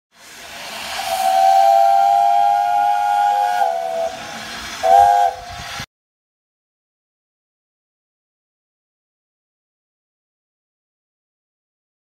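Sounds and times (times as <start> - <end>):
hiss of steam: 0.1 - 5.9
steam whistle blasts: 0.2 - 5.9.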